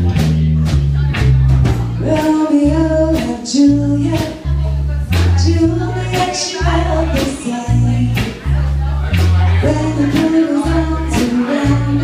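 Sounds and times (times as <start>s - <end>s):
live rock band playing: 0.0s - 12.0s
woman singing: 2.0s - 8.5s, 9.4s - 12.0s.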